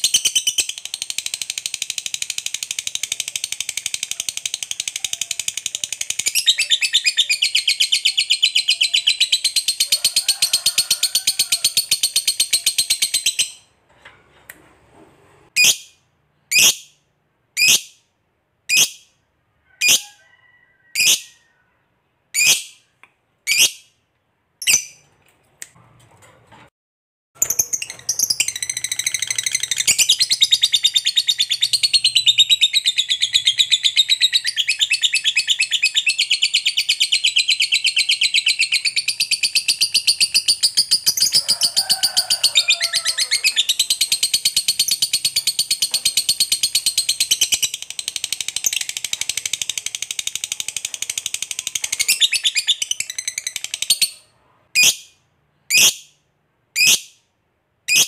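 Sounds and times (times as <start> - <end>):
sharp bird chirps: 0.0 - 10.0.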